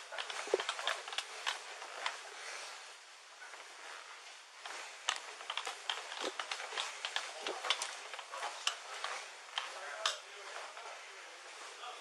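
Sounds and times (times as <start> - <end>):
light clicks and taps: 0.1 - 2.2, 4.2 - 11.0.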